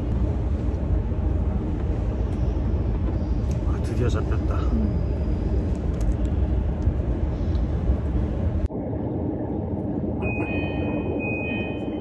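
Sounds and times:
train rumble inside passenger car: 0:00.0 - 0:12.0
high steady tone: 0:10.1 - 0:12.0.

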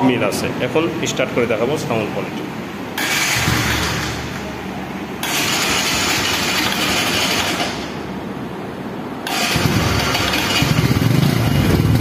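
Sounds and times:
motorcycle engine running: 0:03.0 - 0:04.3, 0:05.2 - 0:07.8, 0:09.3 - 0:12.0.

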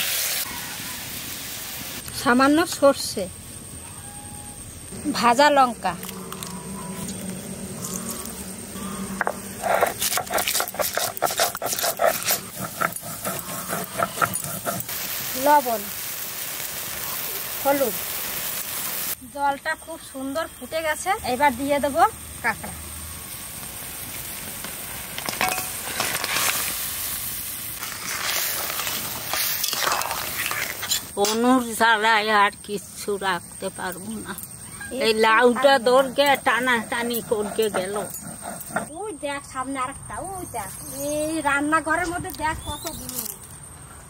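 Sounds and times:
broth boiling with hiss: 0:00.0 - 0:06.5, 0:07.2 - 0:41.6
stone grinding on stone slab: 0:09.2 - 0:14.9.

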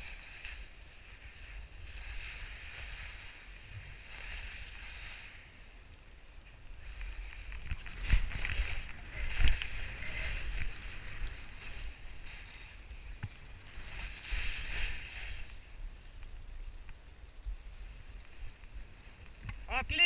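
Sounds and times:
skis swishing through snow: 0:00.0 - 0:05.7, 0:06.8 - 0:15.6.

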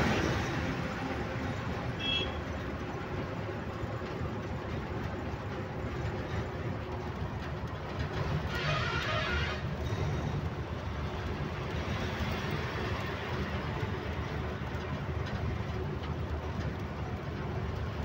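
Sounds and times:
truck engine and road noise: 0:00.0 - 0:18.0.

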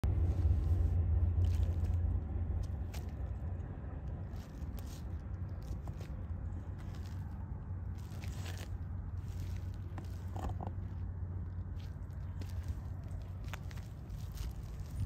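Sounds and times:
footsteps on mud: 0:00.0 - 0:15.0
steady low rumble: 0:00.0 - 0:15.0.

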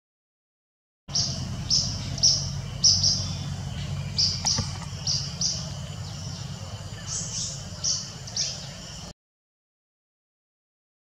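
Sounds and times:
steady low hum: 0:01.1 - 0:09.2.

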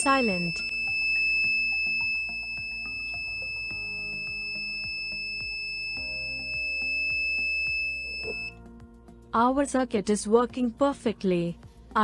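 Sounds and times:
high-pitched alarm buzzer tone: 0:00.0 - 0:08.5
background music: 0:00.0 - 0:12.0.

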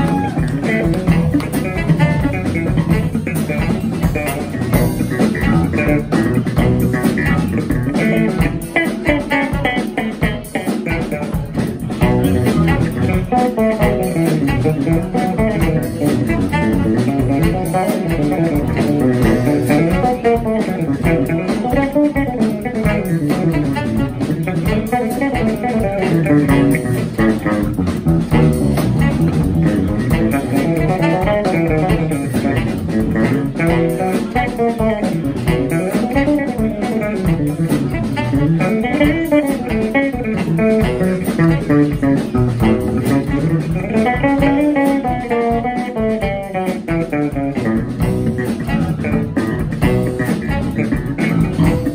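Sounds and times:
drums: 0:00.0 - 0:51.9
electric bass guitar melody: 0:00.0 - 0:51.9.

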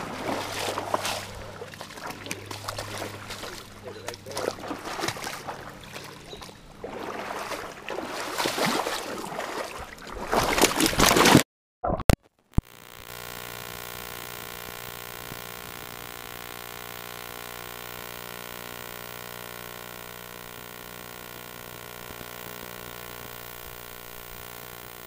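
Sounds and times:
steady hum: 0:00.0 - 0:09.9, 0:12.6 - 0:25.0
feet splashing through water: 0:00.0 - 0:11.4.

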